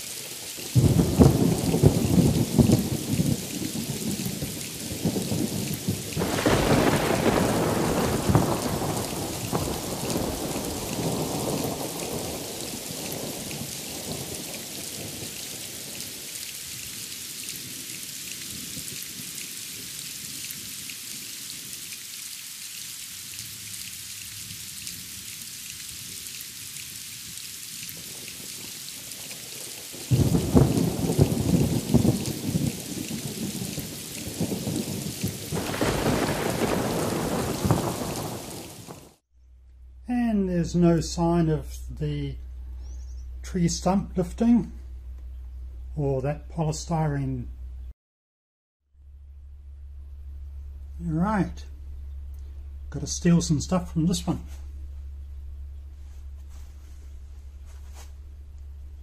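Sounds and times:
heavy rain: 0.0 - 39.2, 50.5 - 59.0
thunder rumbling: 0.4 - 16.3, 28.0 - 39.2, 49.0 - 59.0.

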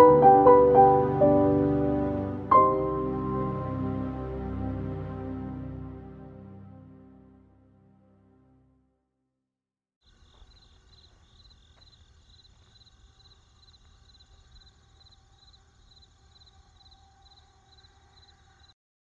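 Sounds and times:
insect chirping trill: 10.0 - 18.8.

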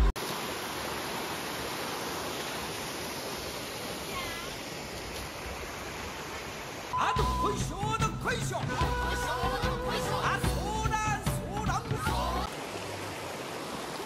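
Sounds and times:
stream running over stones: 0.0 - 7.0, 12.1 - 14.0
background music: 7.0 - 12.5.

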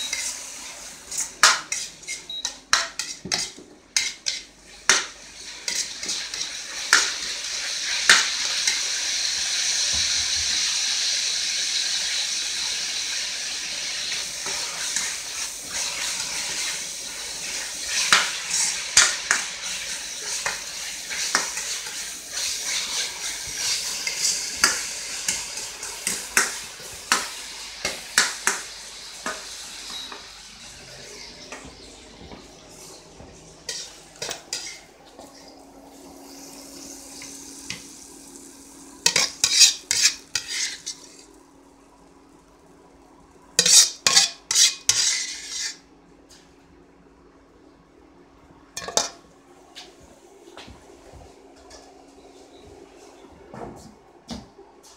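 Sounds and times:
vegetables sizzling in hot oil: 0.0 - 30.4, 35.9 - 42.8, 43.5 - 45.8
metal ladle scraping a wok: 39.1 - 41.2, 43.6 - 45.8.

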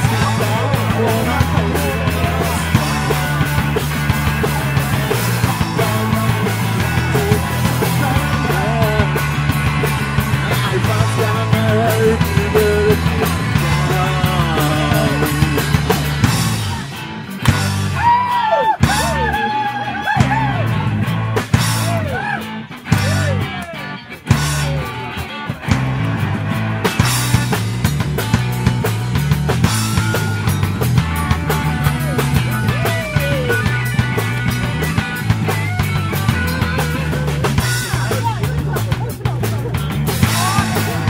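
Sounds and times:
person singing: 0.0 - 16.1, 31.6 - 34.2, 35.6 - 41.0
shouted vocals: 0.0 - 17.0, 17.8 - 21.0, 21.6 - 24.9, 31.4 - 41.0
drums: 0.0 - 41.0
electric bass: 0.0 - 41.0
electric guitars: 0.0 - 41.0.

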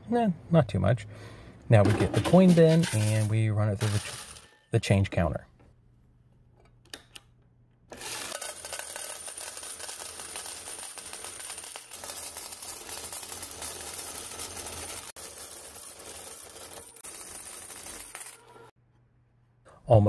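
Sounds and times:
coins clattering in coin counter: 1.9 - 4.6, 7.9 - 18.7.

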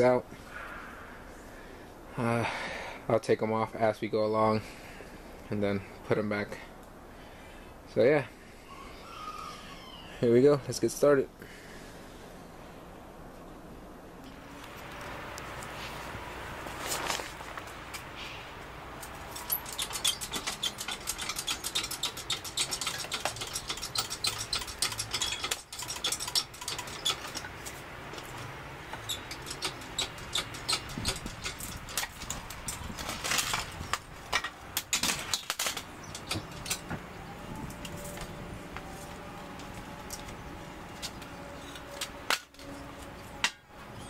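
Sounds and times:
hoist chain clicking and rattling: 19.0 - 36.9.

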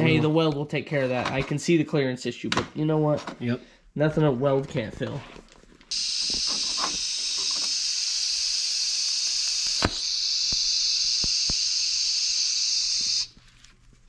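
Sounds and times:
welding arc hissing: 5.9 - 13.4.

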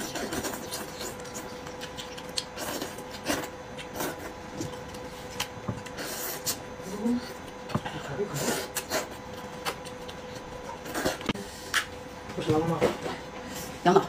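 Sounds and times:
wet chewing and lip smacks: 0.1 - 5.5.

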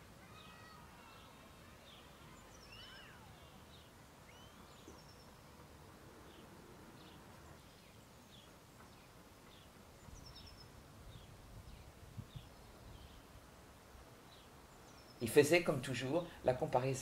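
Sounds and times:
faint outdoor ambience: 0.0 - 17.0
small bird chirping: 0.3 - 5.5, 7.0 - 13.3.

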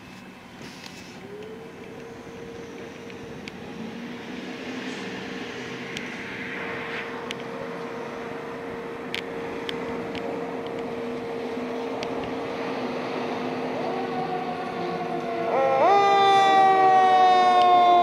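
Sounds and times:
diesel engines running: 0.0 - 18.0
steady whine: 0.0 - 18.0
siren winding up: 13.7 - 18.0.

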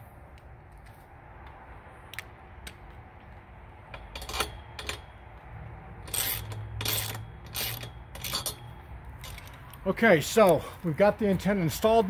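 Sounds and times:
wrench clicking and scraping on metal: 3.8 - 9.9.

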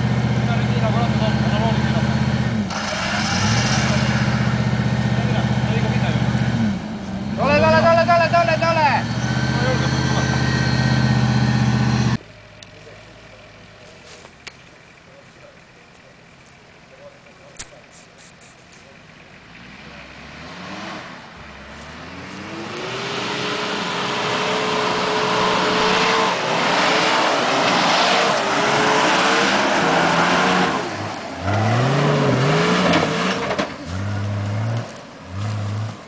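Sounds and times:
suv engine revving in mud: 0.0 - 12.2, 19.4 - 36.0.

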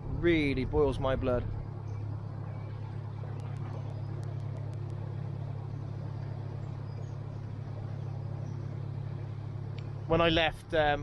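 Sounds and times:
diesel engine droning: 0.0 - 11.0
faint high clicks: 3.3 - 5.1.

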